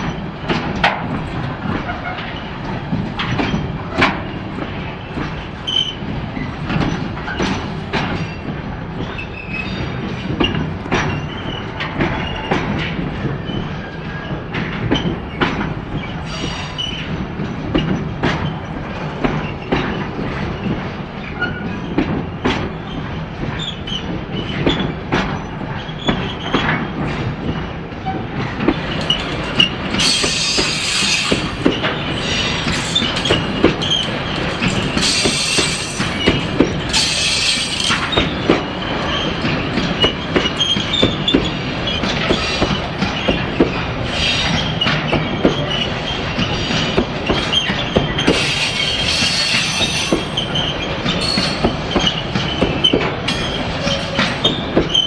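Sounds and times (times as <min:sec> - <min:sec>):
freight train rumbling past: 0:00.0 - 0:55.0
wheels clicking over rail joints: 0:00.0 - 0:55.0
high-pitched wheel squeal: 0:47.5 - 0:55.0.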